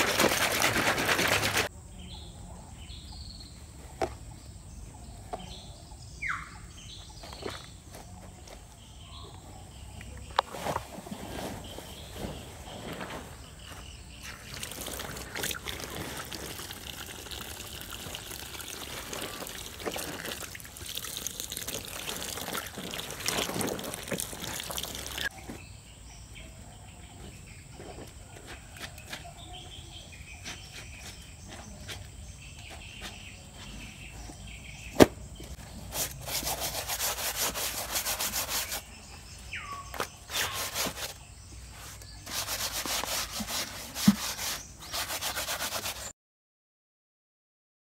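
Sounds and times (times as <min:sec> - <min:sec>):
hands squeezing clothes in water: 0:00.0 - 0:01.7, 0:14.3 - 0:25.3
stiff brush scrubbing cloth: 0:00.0 - 0:01.7, 0:14.2 - 0:25.3, 0:35.8 - 0:39.0, 0:40.2 - 0:41.2, 0:41.8 - 0:46.1
faint bird chirps: 0:04.7 - 0:14.6, 0:38.6 - 0:42.3.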